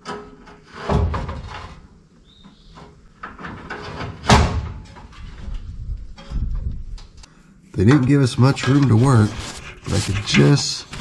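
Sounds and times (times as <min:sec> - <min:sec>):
car parts knocking and clattering: 0:00.0 - 0:07.2.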